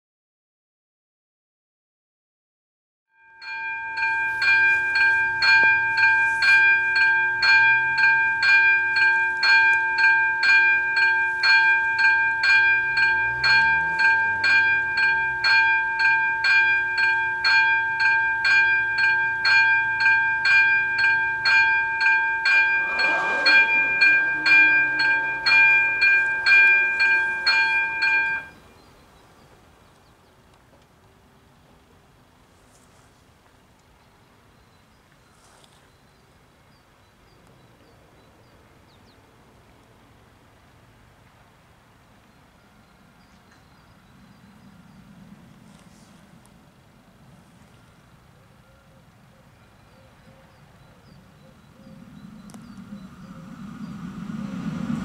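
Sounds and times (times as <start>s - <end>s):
electronic level crossing bell: 3.2s - 28.6s.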